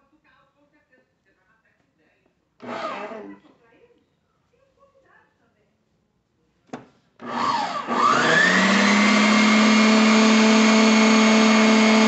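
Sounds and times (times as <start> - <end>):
stand mixer motor whining: 2.6 - 3.3, 7.2 - 12.0.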